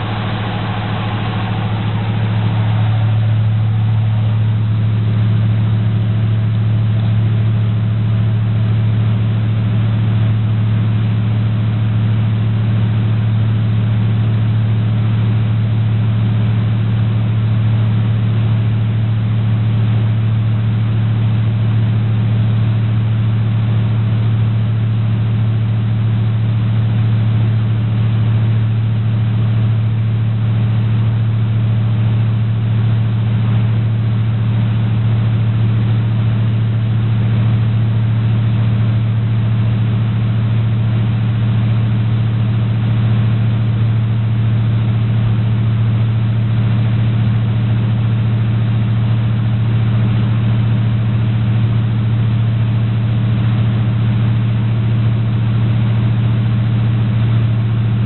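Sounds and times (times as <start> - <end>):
truck engine idling: 0.0 - 8.2.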